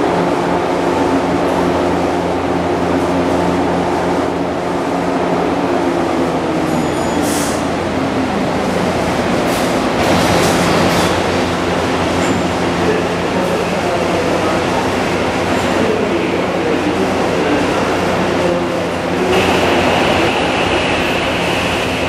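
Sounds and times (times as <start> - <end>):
electric train humming: 0.0 - 22.0.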